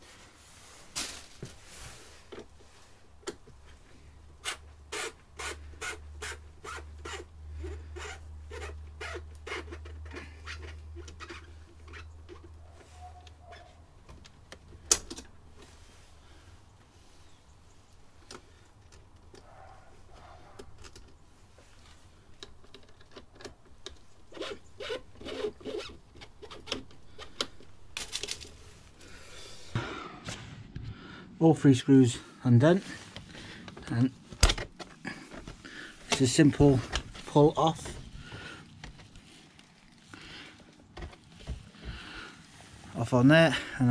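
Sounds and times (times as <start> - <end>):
screwdriver clicking and rubbing: 22.4 - 28.5.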